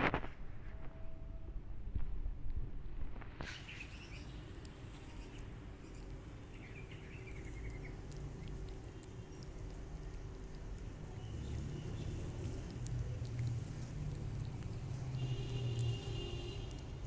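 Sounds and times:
faint bird chirps: 3.4s - 9.7s
cats crunching dry kibble: 4.4s - 17.0s.

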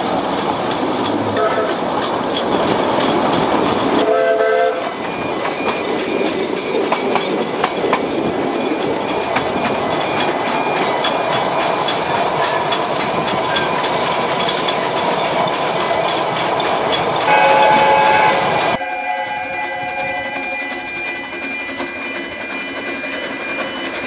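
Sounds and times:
wheels clicking over rail joints: 0.0s - 4.1s, 4.8s - 24.0s
train coaches rumbling: 0.0s - 24.0s
steam locomotive whistle: 1.4s - 1.8s, 4.0s - 6.0s, 17.2s - 24.0s.

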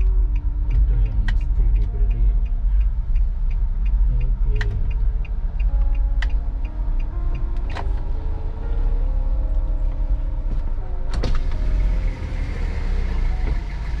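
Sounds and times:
turn-signal relay ticking: 0.0s - 9.8s
car engine and tyres rumble: 0.0s - 14.0s.

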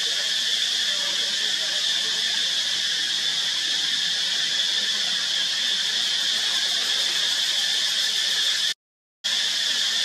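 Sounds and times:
insect chorus drone: 0.0s - 10.0s.

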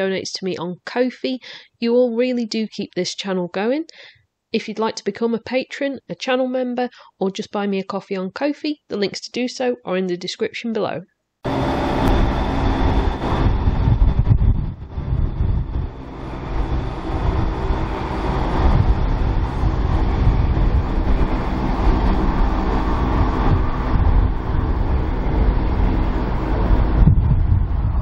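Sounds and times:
diesel train engines running: 11.5s - 28.0s.

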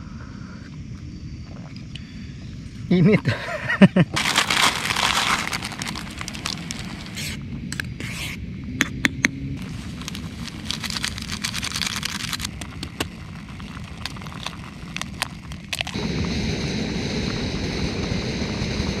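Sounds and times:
gas camping stove burning: 4.1s - 8.0s, 9.6s - 19.0s
packet rustling: 4.2s - 7.4s, 9.6s - 16.0s
water boiling in pot: 4.2s - 7.8s, 9.6s - 18.8s.

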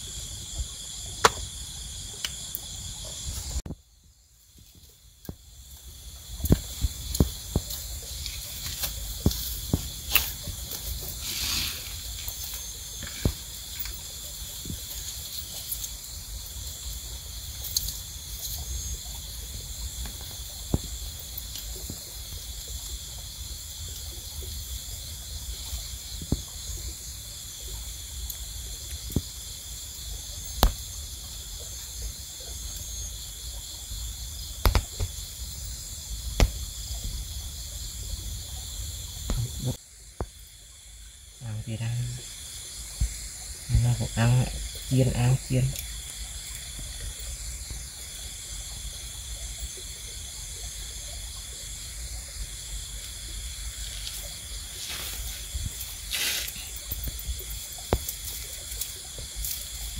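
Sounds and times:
high-pitched insect chorus: 0.0s - 59.9s
sharp clicks and knocks: 1.2s - 1.5s, 34.6s - 35.2s.

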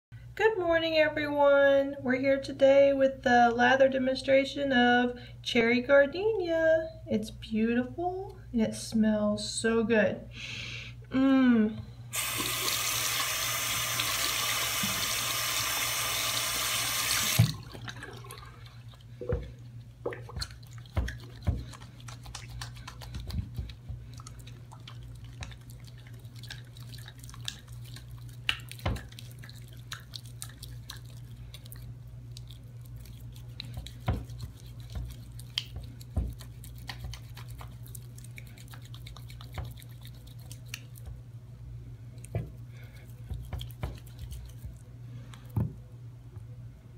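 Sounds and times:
faucet running into sink: 12.2s - 18.6s
hands lathering soap: 12.2s - 41.2s, 42.1s - 45.6s
steady low hum: 17.4s - 46.9s.

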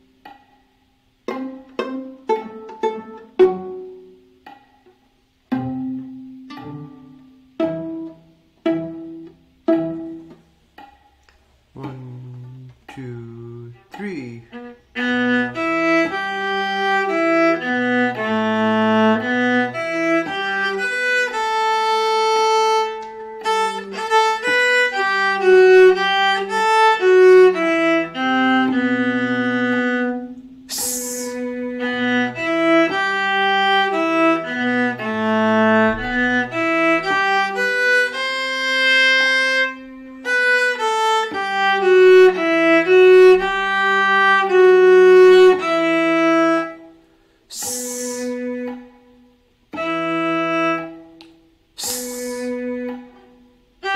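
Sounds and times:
bowed viola detached notes: 0.0s - 53.9s
cello line: 0.0s - 53.9s
person hissing: 30.7s - 31.6s, 47.5s - 48.5s, 51.8s - 52.7s.

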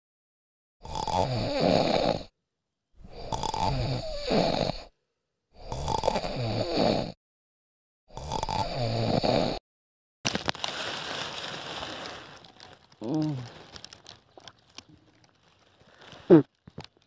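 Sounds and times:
man snoring: 0.8s - 2.3s, 3.0s - 7.2s, 8.1s - 9.6s.

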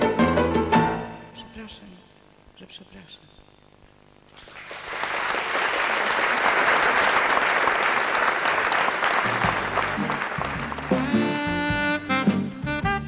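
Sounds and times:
audience applauding: 4.3s - 11.5s.

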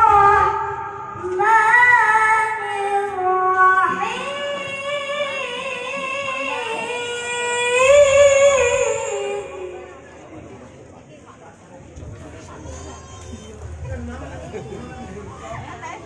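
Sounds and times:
child chanting over loudspeaker: 0.0s - 10.0s.

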